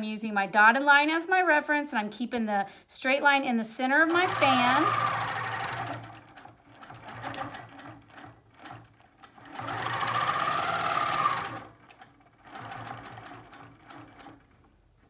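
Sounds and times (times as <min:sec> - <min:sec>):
quilting machine stitching: 0:03.8 - 0:15.0.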